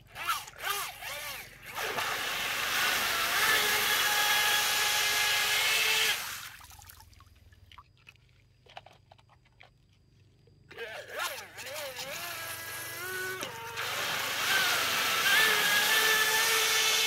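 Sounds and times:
motor whine: 0.0s - 6.5s, 10.7s - 17.0s.

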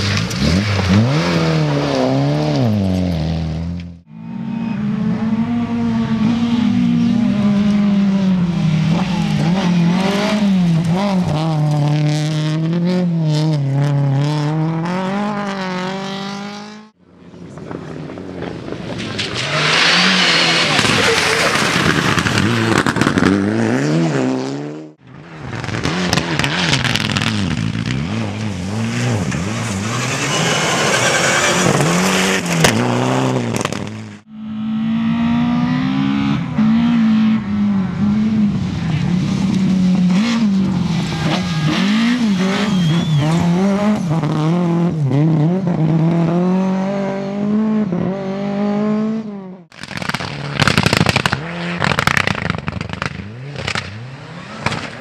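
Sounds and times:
rally car engines revving: 0.0s - 55.0s
engine crackle: 25.4s - 34.3s, 49.7s - 55.0s.

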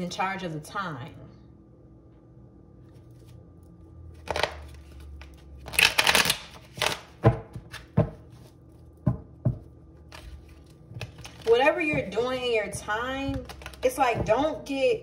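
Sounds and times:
cards rustling: 10.0s - 12.1s, 13.3s - 14.3s.

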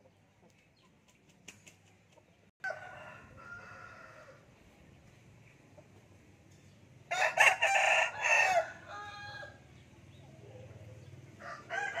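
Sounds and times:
rooster crowing: 2.6s - 4.4s, 7.1s - 9.6s, 11.4s - 12.0s.

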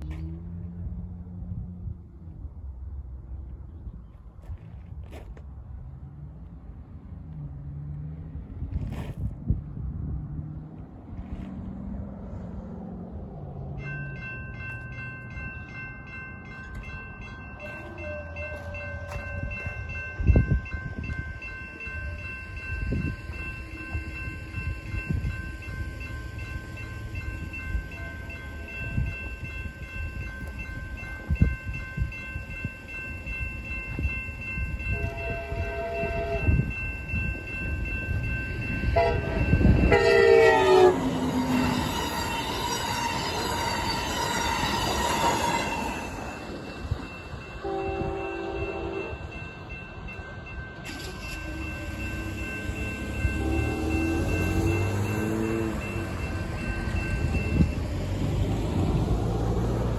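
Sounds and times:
train wheels rumbling on rails: 4.2s - 59.9s
railroad crossing bell ringing: 12.4s - 59.9s
train horn blasts: 17.6s - 20.0s, 34.8s - 36.8s, 38.8s - 43.3s, 47.6s - 49.2s, 53.2s - 55.7s.

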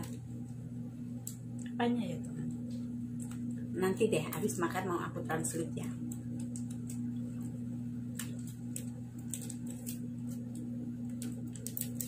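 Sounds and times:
steady low hum: 0.0s - 12.0s
plastic wrapper crackling: 5.9s - 12.0s.

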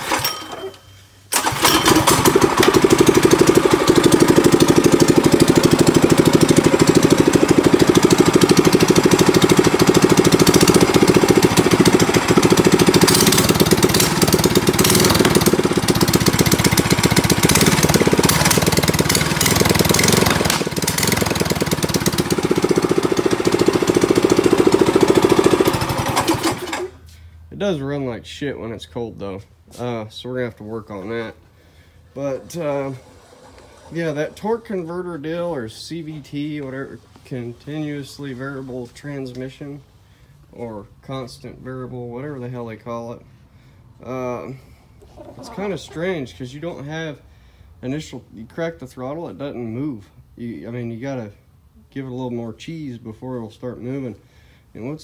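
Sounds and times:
small motorbike engine running: 1.4s - 26.9s, 32.3s - 34.4s.

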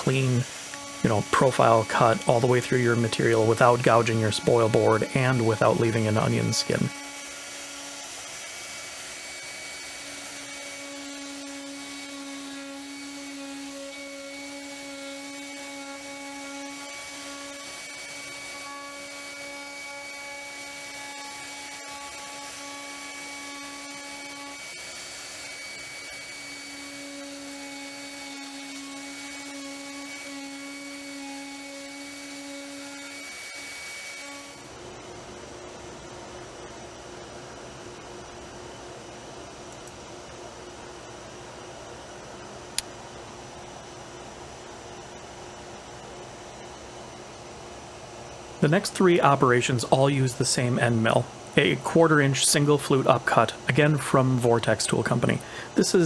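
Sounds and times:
router spindle whining while cutting wood: 0.0s - 34.7s.

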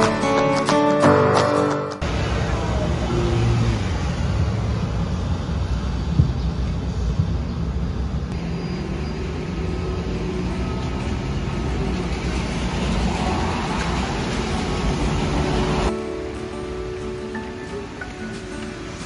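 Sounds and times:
vehicle rumble: 2.0s - 16.0s.

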